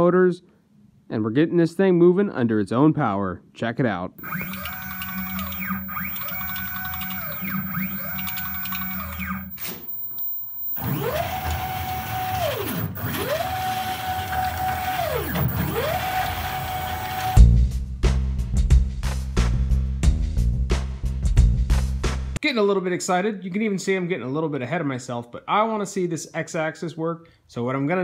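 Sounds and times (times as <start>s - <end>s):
stepper motors whining: 4.2s - 17.4s
music: 17.4s - 22.4s.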